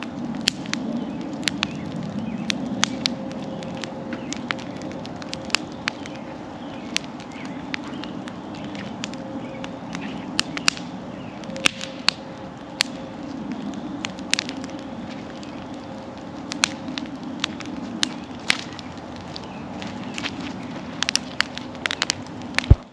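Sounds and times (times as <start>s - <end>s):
bonfire crackling: 0.0s - 22.9s
burning logs popping: 0.0s - 22.9s.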